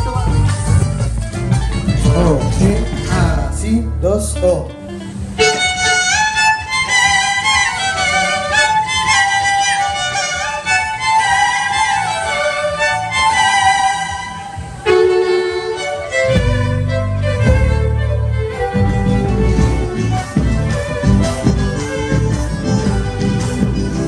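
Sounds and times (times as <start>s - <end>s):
two violins playing in harmony: 5.1s - 24.0s.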